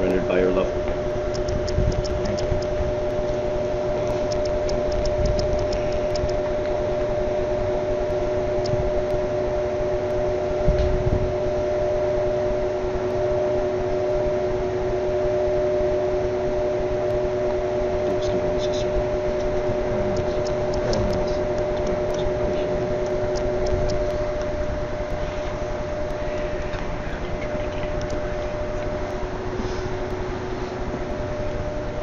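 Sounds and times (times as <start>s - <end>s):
mechanical hum with hiss: 0.0s - 32.0s
faint rapid ticks: 1.2s - 3.2s, 4.0s - 6.7s, 23.0s - 24.5s.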